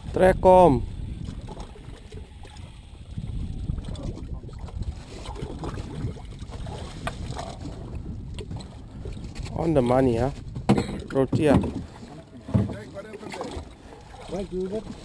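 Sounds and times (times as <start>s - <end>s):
wind and sea rumble: 0.0s - 15.0s.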